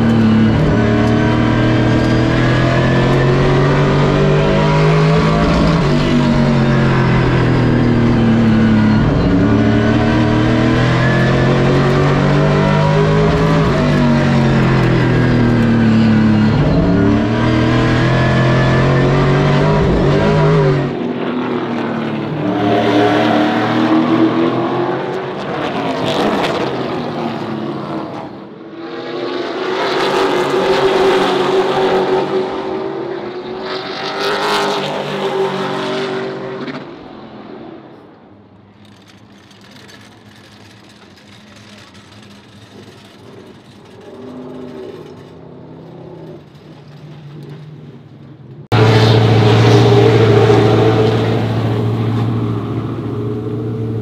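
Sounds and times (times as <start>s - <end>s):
race car engine at speed: 0.0s - 54.0s
rushing noise: 48.7s - 54.0s
thin engine note: 48.7s - 54.0s.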